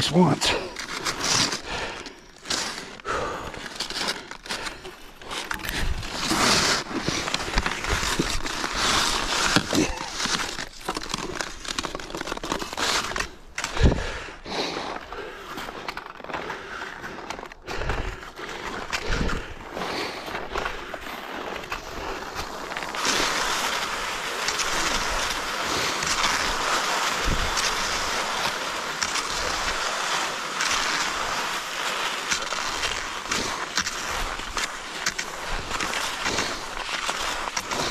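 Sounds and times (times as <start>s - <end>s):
skis scraping and knocking: 0.0s - 37.9s
skis gliding hiss: 5.3s - 10.8s, 21.1s - 37.9s.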